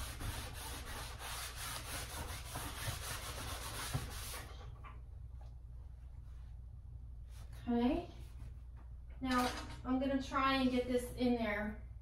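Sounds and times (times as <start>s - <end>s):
rag rubbing on canvas: 0.0s - 4.5s.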